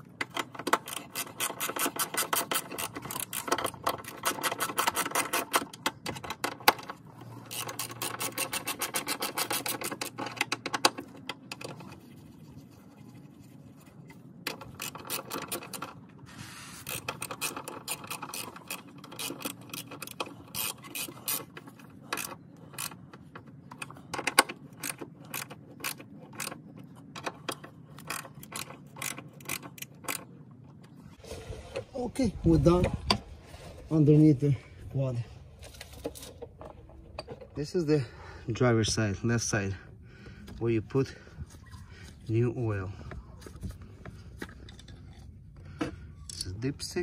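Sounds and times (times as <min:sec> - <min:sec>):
socket ratchet clicking: 0:16.8 - 0:26.6, 0:27.2 - 0:30.3.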